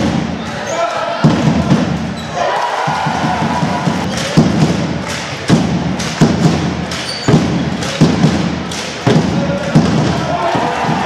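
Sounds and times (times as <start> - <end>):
din of sports hall: 0.0 - 11.0
basketball bouncing on floor: 5.5 - 10.2.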